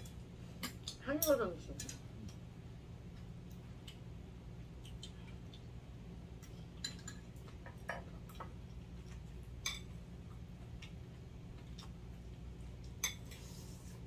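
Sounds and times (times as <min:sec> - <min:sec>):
low steady hum: 0:00.0 - 0:14.0
utensils clinking on ceramic bowls: 0:06.8 - 0:08.4.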